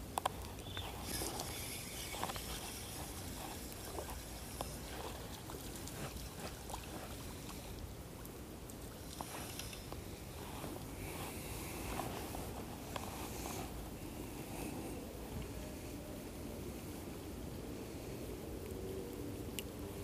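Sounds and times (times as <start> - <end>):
creek trickling: 0.0 - 14.5
fishing reel whirring: 0.8 - 7.8, 9.0 - 10.0.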